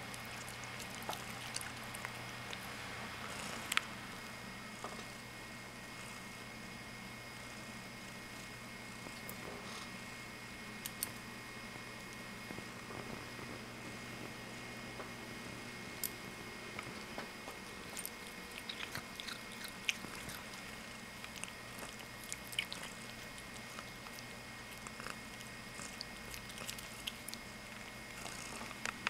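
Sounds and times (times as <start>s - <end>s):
cat chewing grass: 0.0s - 4.3s, 17.5s - 29.0s.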